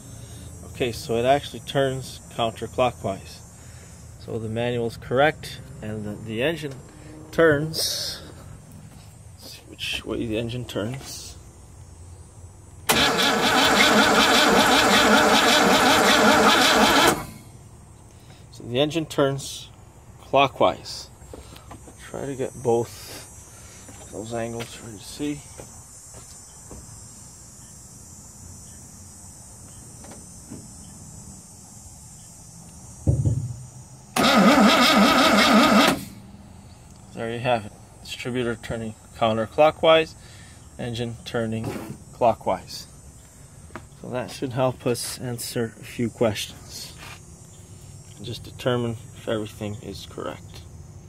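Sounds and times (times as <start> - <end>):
engine cranking by starter motor: 12.8 - 17.5, 34.1 - 36.2
short low thump: 33.0 - 33.7.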